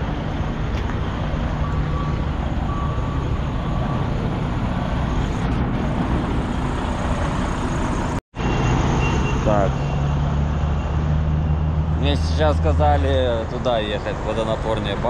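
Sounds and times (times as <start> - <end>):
truck engine running: 0.0 - 8.2
short beeps: 1.6 - 4.1.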